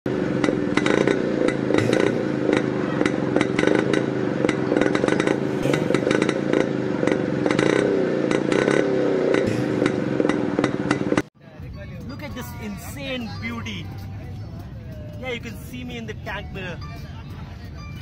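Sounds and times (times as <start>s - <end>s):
motorcycle engine with rattling clatter: 0.1s - 13.4s.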